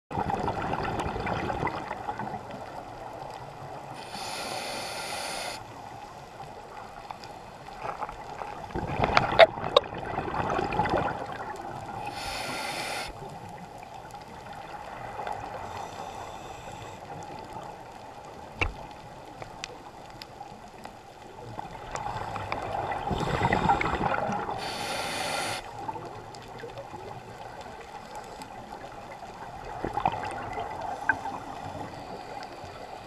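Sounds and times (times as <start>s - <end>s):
bubbling underwater: 0.1s - 2.4s, 8.7s - 12.0s, 29.5s - 31.6s
short hisses: 4.0s - 5.6s, 12.1s - 13.2s, 24.6s - 25.7s
scuba regulator breathing: 4.0s - 5.8s, 12.0s - 13.2s, 15.5s - 17.1s, 23.0s - 25.8s.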